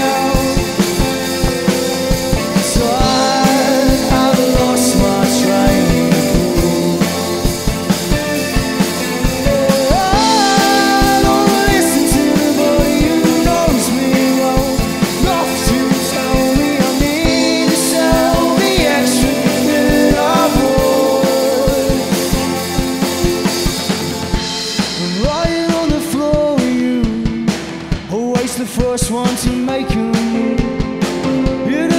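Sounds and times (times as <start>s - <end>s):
person singing: 0.0s - 23.4s, 24.9s - 31.9s
bass guitar: 0.0s - 31.9s
drum kit steady beat: 0.0s - 31.9s
electric guitars: 0.0s - 31.9s.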